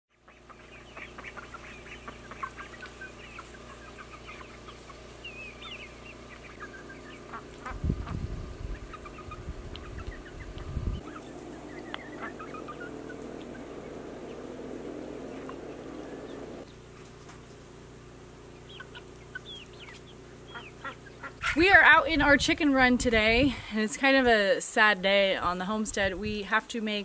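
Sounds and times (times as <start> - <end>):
short chirping calls: 0.2 - 16.8, 18.5 - 21.5
chickens clucking: 0.2 - 22.0
low rumbling on microphone: 5.3 - 16.7.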